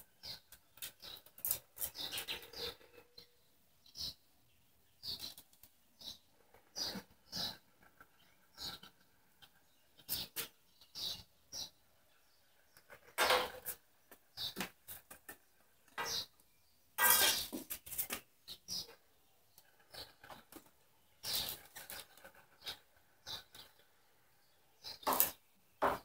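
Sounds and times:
tools clattering: 17.0 - 17.7
tools clinking and knocking: 17.0 - 17.7.

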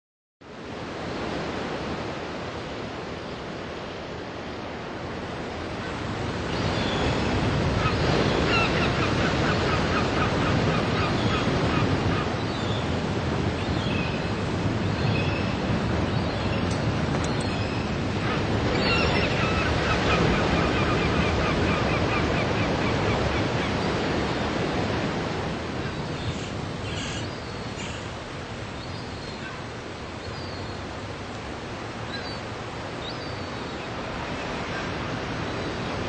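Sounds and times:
steady wind: 0.4 - 36.0
surf washing on beach: 0.4 - 36.0.

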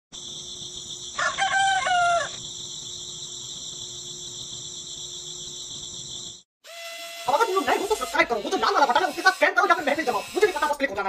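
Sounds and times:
insects chirping chorus: 0.1 - 6.4
rooster crowing: 1.2 - 2.4.

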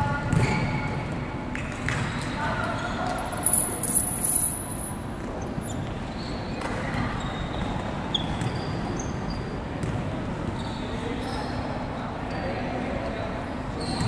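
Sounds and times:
sports hall din: 0.0 - 14.0
shoe squeaks: 2.7 - 6.5, 7.1 - 9.6, 10.5 - 11.5.

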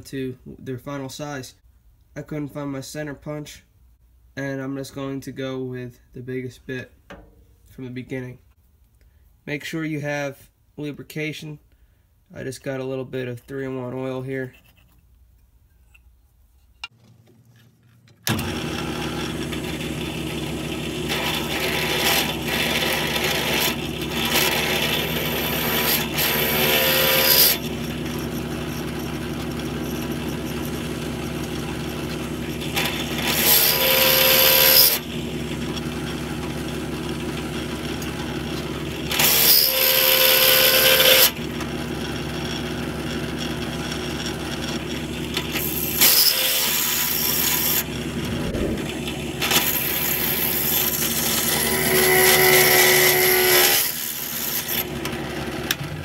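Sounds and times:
drill press motor running: 18.3 - 55.9
drill bit cutting steel: 21.1 - 29.2, 32.5 - 35.1, 39.1 - 41.4, 45.5 - 47.9, 49.4 - 54.9.

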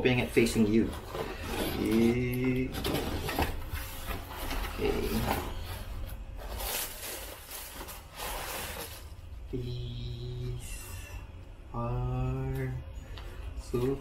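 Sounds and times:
tissue paper rustling: 3.7 - 9.2.

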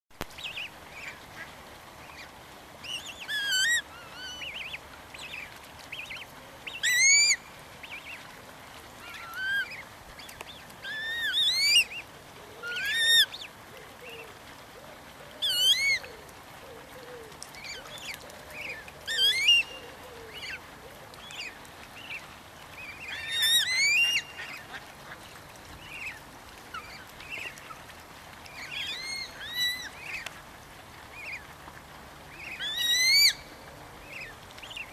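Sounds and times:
swans whistled calls: 6.8 - 7.4, 10.7 - 12.0, 12.6 - 13.4, 17.7 - 20.6, 23.0 - 24.6, 32.4 - 33.6.

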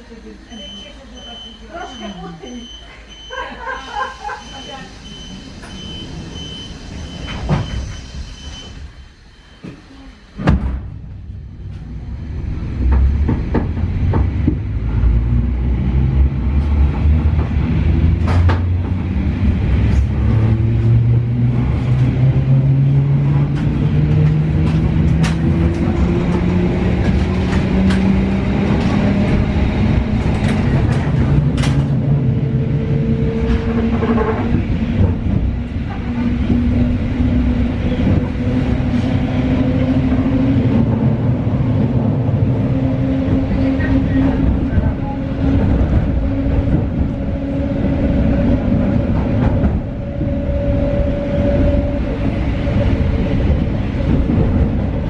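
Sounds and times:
train wheels rumbling: 9.6 - 55.0
thump: 10.4 - 10.9
track clacks: 11.6 - 55.0.

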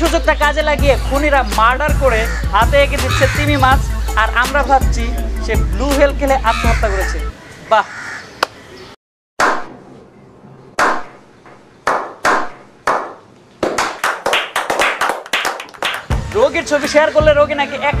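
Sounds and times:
hand claps: 11.9 - 16.5
people clapping: 11.9 - 16.5.

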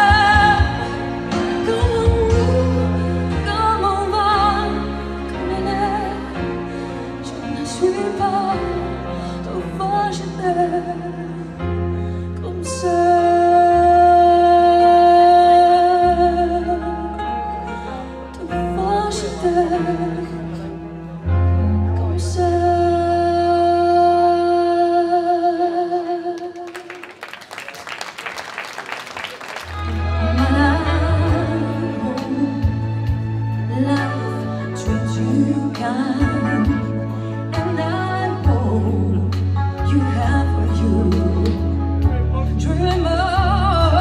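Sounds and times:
woman singing a slow ballad: 0.0 - 20.7, 21.5 - 26.7, 30.0 - 41.9, 42.6 - 44.0
instrumental accompaniment: 29.6 - 44.0.

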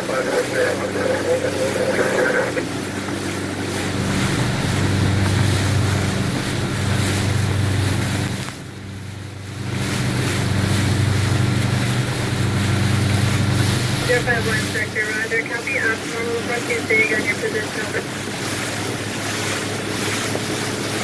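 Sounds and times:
boat engine humming: 0.0 - 21.0
water rushing past: 0.0 - 21.0
wind buffeting microphone: 2.6 - 14.9.

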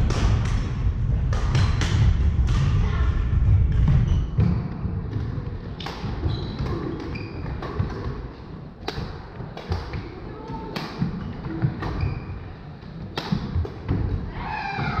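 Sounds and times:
rackets striking shuttlecocks: 4.4 - 14.3
shoes thudding and squeaking on wood: 6.2 - 7.9.

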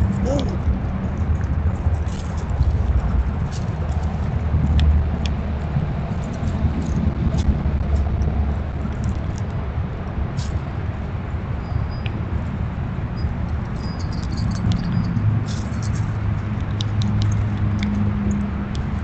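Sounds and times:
steady low rumble: 0.0 - 19.0
squirrels rustling in dry leaves: 1.3 - 8.1.

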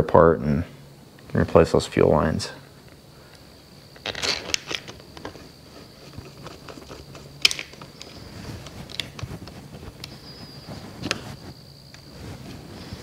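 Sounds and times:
light handling rattle: 2.8 - 13.0.

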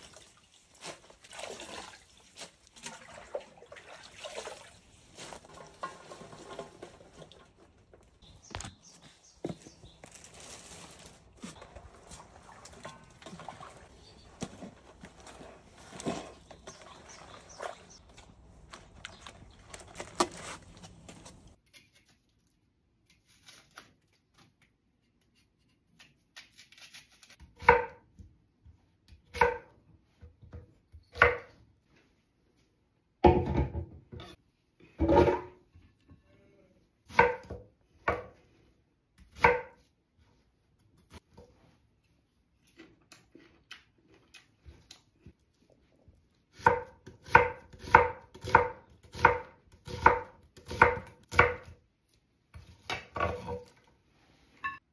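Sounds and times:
hands rustling greens in steel basin: 8.8 - 21.6.

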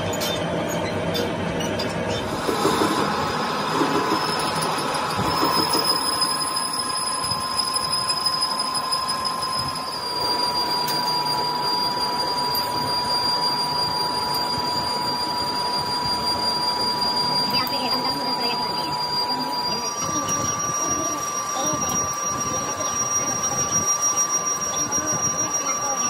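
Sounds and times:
metal lathe running: 0.0 - 26.0.

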